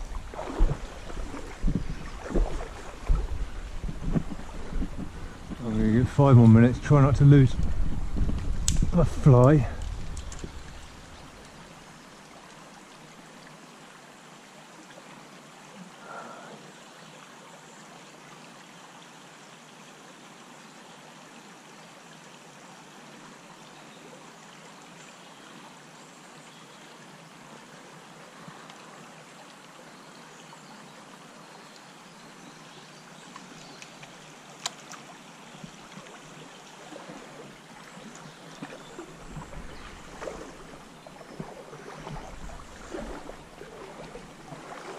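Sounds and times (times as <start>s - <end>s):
stream water rushing: 0.0s - 26.3s, 27.0s - 44.9s
faint clicks: 7.6s - 11.6s, 33.3s - 36.2s.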